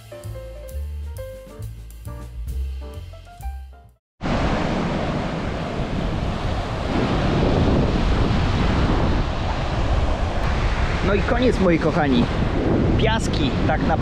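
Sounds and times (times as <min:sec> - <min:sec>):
strong wind buffeting microphone: 0:04.2 - 0:14.0.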